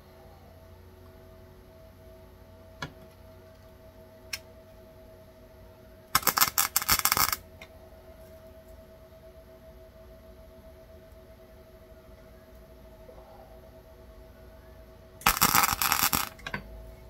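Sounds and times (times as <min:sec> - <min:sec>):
faint steady hum: 0:00.0 - 0:17.0
welder arc crackling: 0:06.1 - 0:07.7, 0:15.2 - 0:16.6.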